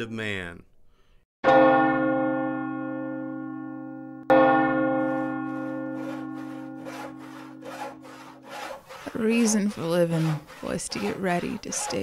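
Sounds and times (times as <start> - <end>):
large bell tolling: 1.4 - 8.4
faint short scraping strokes: 5.6 - 12.0.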